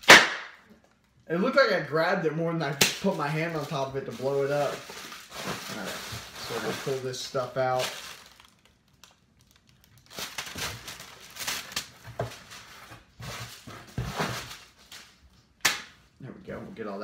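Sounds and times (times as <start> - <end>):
bubble wrap snap: 0.0 - 0.6, 15.6 - 16.0
bubble wrap crinkling: 2.6 - 15.6.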